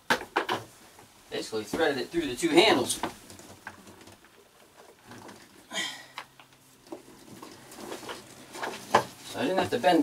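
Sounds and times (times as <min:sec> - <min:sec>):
rope knocks and rustles: 0:02.8 - 0:05.6, 0:06.4 - 0:09.9.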